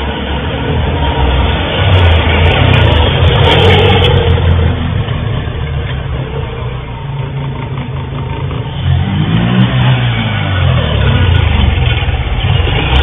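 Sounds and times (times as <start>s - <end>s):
motorcycle engine revving: 1.4s - 13.0s.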